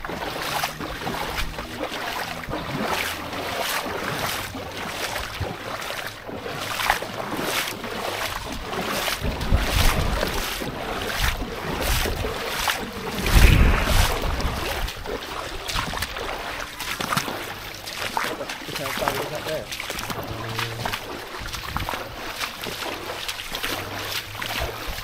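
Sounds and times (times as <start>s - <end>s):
feet wading through water: 0.0s - 25.0s
wind rumbling on microphone: 7.8s - 17.2s, 20.0s - 22.6s.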